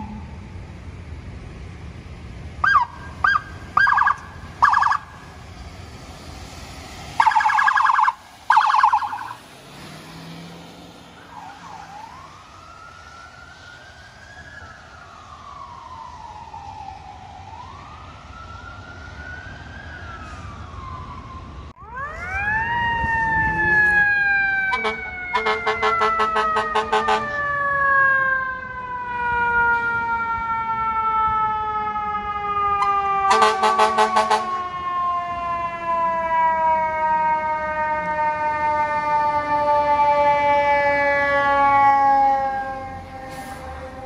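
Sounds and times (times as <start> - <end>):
siren yelps: 0.0 - 0.5, 2.6 - 5.4, 7.1 - 9.5, 11.1 - 44.0
siren wailing: 0.0 - 0.7, 2.6 - 6.2, 7.1 - 44.0
engine rumble: 0.0 - 33.7
loud horn blasts: 24.7 - 27.4, 33.3 - 34.6.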